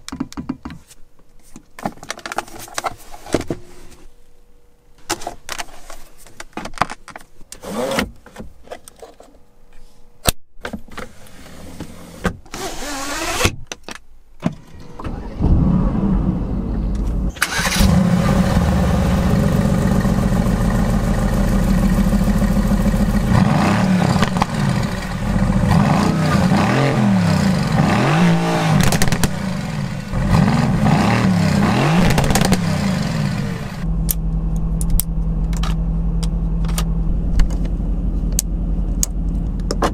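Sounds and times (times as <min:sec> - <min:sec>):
car engine starting and idling: 0:14.7 - 0:39.9
car engine revving: 0:15.1 - 0:34.4.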